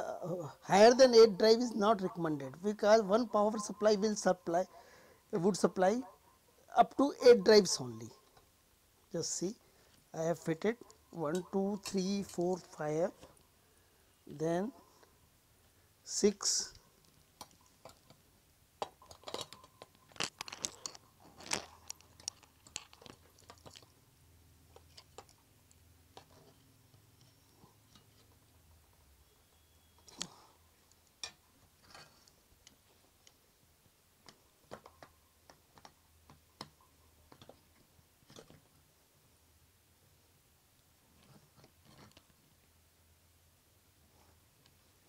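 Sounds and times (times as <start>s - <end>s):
metal clicks and scrapes: 18.8s - 23.9s.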